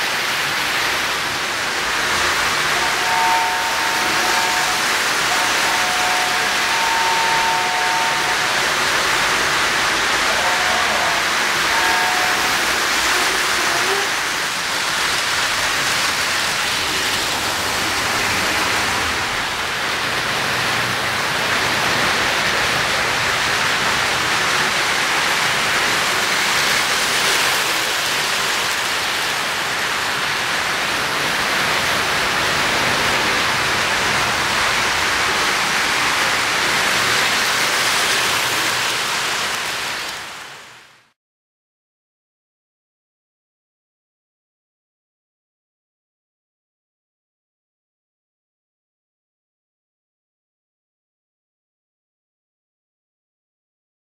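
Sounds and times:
model train wheels and motors rumbling: 0:00.0 - 0:41.1
two-note train horn: 0:02.6 - 0:09.1, 0:10.1 - 0:14.2.

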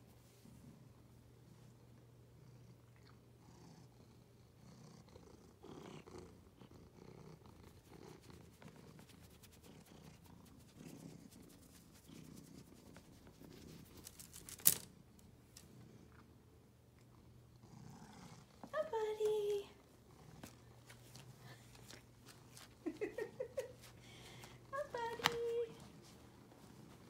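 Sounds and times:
cat purring: 0:02.2 - 0:14.2, 0:15.7 - 0:22.2.

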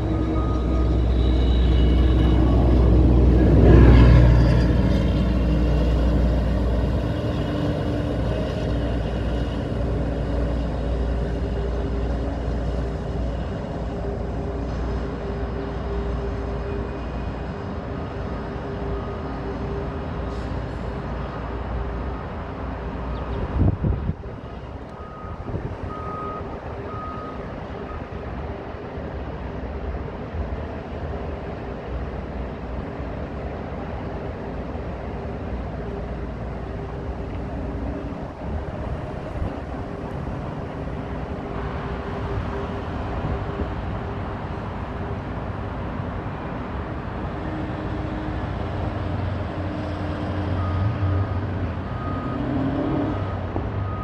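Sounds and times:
reversing beeper: 0:00.0 - 0:05.0, 0:50.4 - 0:54.0
industrial machinery rumble: 0:00.0 - 0:29.0
traffic rumble: 0:00.0 - 0:54.0.

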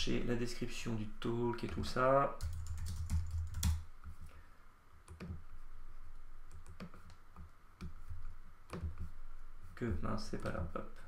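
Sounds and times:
computer keyboard and mouse clicks: 0:02.4 - 0:03.8, 0:05.0 - 0:05.4, 0:06.5 - 0:08.0.

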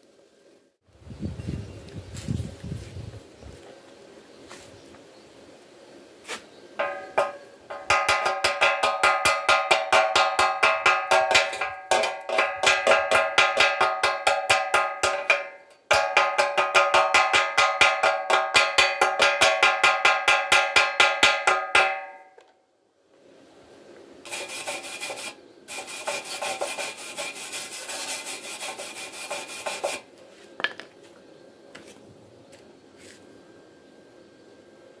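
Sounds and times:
brushing slag off metal: 0:06.2 - 0:16.7, 0:24.2 - 0:30.1
metal strikes on ringing tube: 0:06.8 - 0:22.4.

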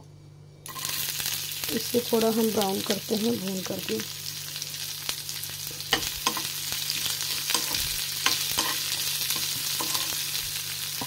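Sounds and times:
vegetables sizzling in hot oil: 0:00.6 - 0:11.0
spatula scraping a pan: 0:05.9 - 0:10.4.

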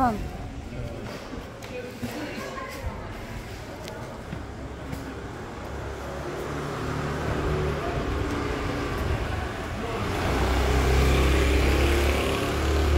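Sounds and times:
motor scooter engine: 0:06.4 - 0:12.9.

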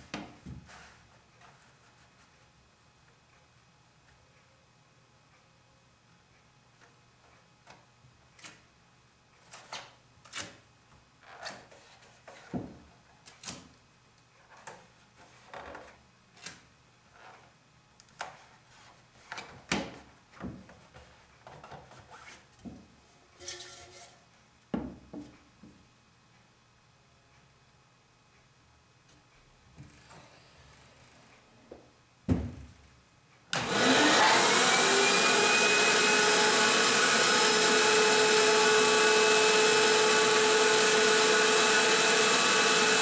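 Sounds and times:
rubbing and rustling sounds: 0:00.5 - 0:02.6, 0:20.7 - 0:24.3.

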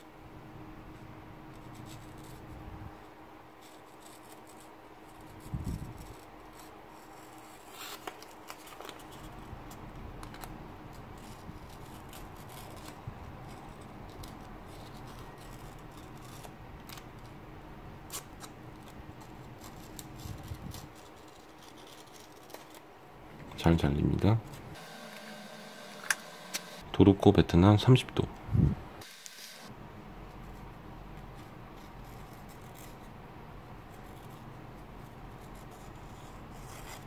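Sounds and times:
blade slicing paper: 0:10.2 - 0:17.3, 0:18.1 - 0:22.9.

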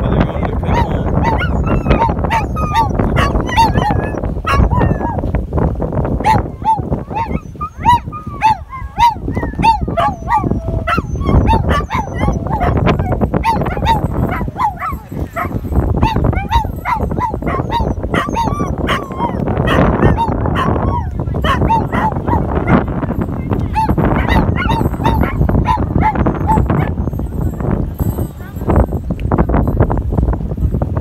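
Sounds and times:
steady low rumble: 0:00.0 - 0:31.0
dog whining and yipping: 0:00.7 - 0:05.2, 0:06.3 - 0:22.8, 0:23.8 - 0:27.3.

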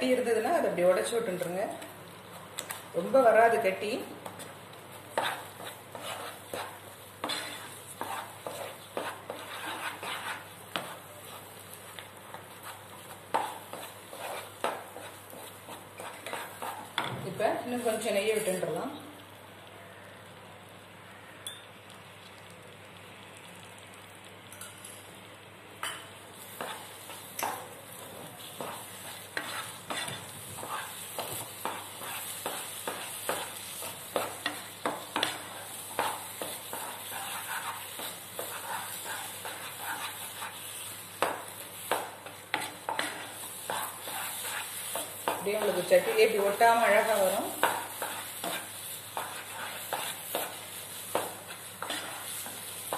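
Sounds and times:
ghee sizzling in a pan: 0:00.0 - 0:52.9
wooden spatula scraping a pan: 0:04.0 - 0:18.6, 0:26.4 - 0:52.9.

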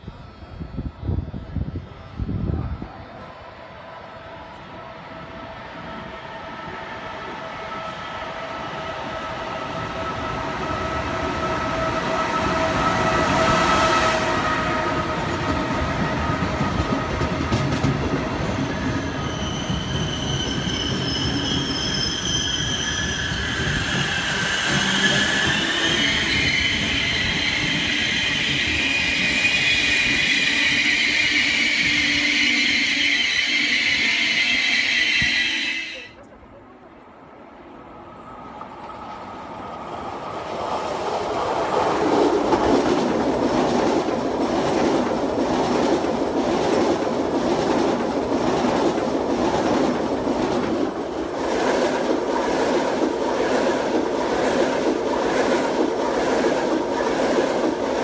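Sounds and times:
passenger train rolling past: 0:00.0 - 0:58.0
metallic wheel and brake squeal: 0:19.0 - 0:36.1.

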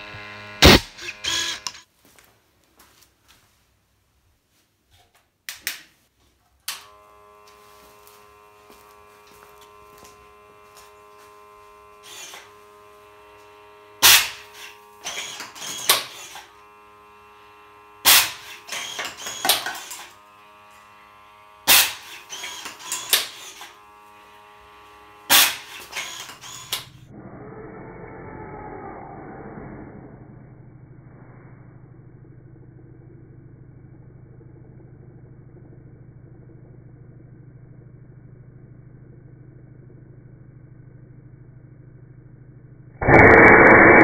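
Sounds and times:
small motor buzzing: 0:00.0 - 0:01.9, 0:06.7 - 0:27.1, 0:43.0 - 0:44.0
compressed air blast: 0:00.6 - 0:01.7, 0:43.0 - 0:44.0.

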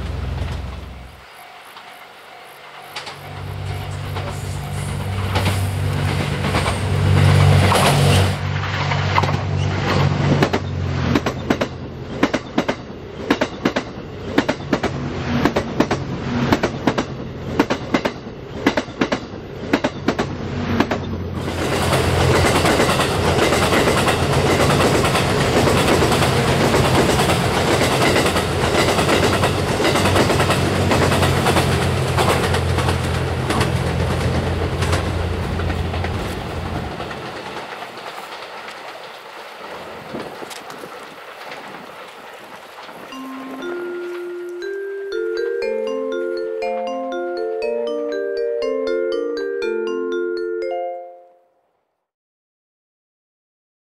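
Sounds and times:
diesel engine hum: 0:00.0 - 0:01.2
rumble of passing train cars: 0:00.0 - 0:50.8
train wheel clacks: 0:00.1 - 0:44.8.

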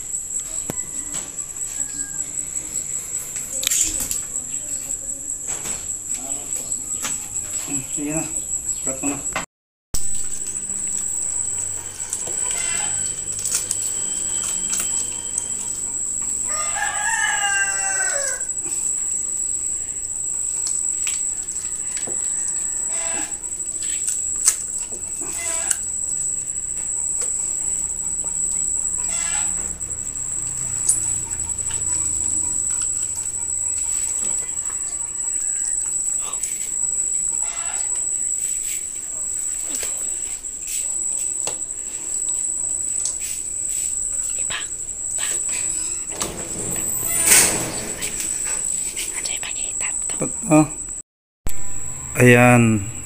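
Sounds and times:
rooster crowing: 0:00.5 - 0:03.6, 0:11.2 - 0:18.9, 0:21.4 - 0:23.6, 0:25.2 - 0:26.0, 0:26.9 - 0:36.4, 0:37.2 - 0:38.1, 0:45.4 - 0:48.7.

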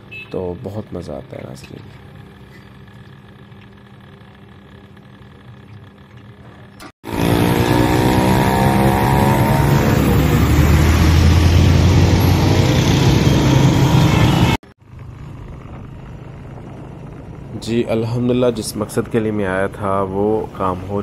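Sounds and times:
vehicle engine slowing down: 0:02.0 - 0:20.3
heavy road noise: 0:07.0 - 0:21.0.

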